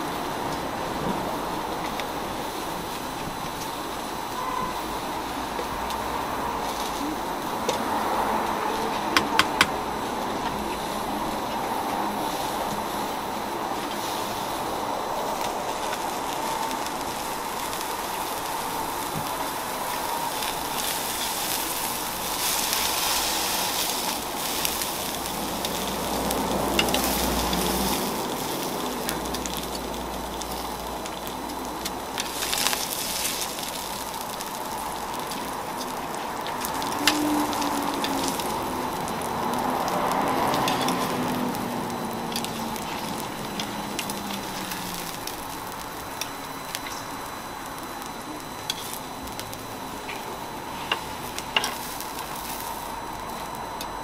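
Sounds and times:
food sizzling on griddle: 0.0 - 54.0
spatula clicking on griddle: 22.4 - 28.6.

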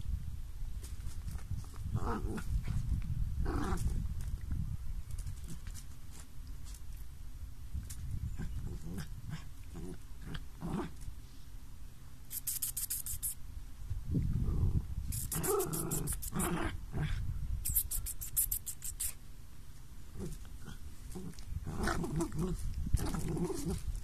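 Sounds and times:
dogs growling: 20.1 - 23.9.

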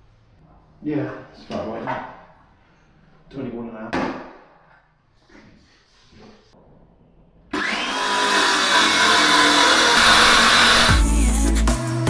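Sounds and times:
circular saw cutting chipboard: 7.6 - 11.0.

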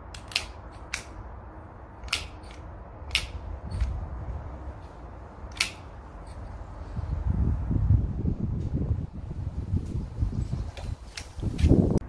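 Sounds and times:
pistol slide cycling: 0.1 - 1.2, 2.0 - 4.1, 5.5 - 6.6, 10.8 - 11.9
wind rumble on microphone: 3.1 - 12.0
air pistol pops: 5.5 - 5.9.

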